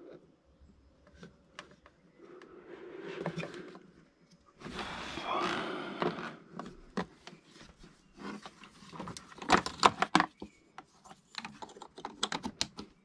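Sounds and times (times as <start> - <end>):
plastic parts clicking and knocking: 8.2 - 13.0.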